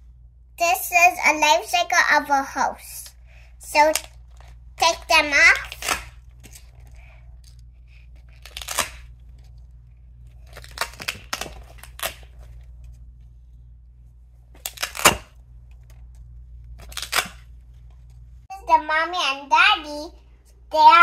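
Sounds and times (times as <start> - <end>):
velcro ripping apart: 8.2 - 9.2, 10.4 - 12.4, 14.6 - 15.3, 16.8 - 17.5.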